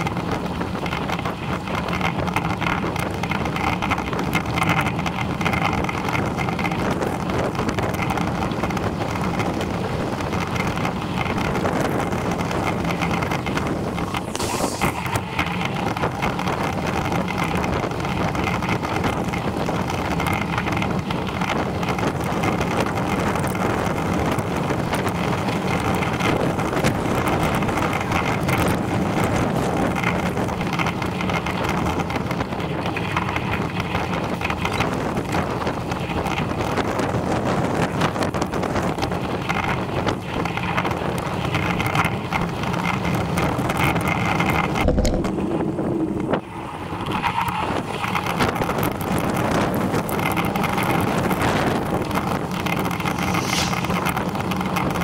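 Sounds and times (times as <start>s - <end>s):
tyre noise on tarmac: 0.0s - 55.0s
wind rush on microphone: 0.0s - 55.0s
low thump: 44.8s - 45.5s.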